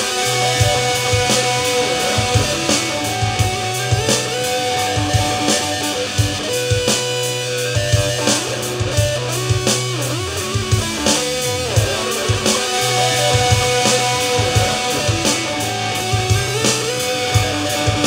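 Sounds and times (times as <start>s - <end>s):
bass notes: 0.0s - 18.0s
drum kit beat: 0.0s - 18.0s
electric guitar: 0.0s - 18.0s.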